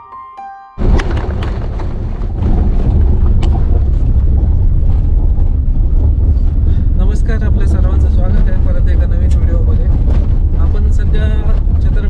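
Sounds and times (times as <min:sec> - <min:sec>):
chiming music notes: 0:00.0 - 0:00.8
car cabin road rumble: 0:00.8 - 0:12.0.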